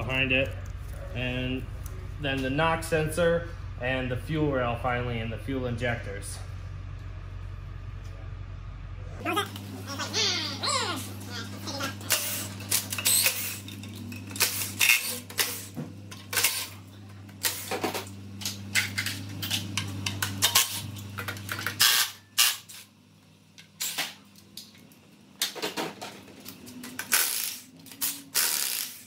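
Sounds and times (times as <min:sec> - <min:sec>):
low hum: 0:00.0 - 0:21.8.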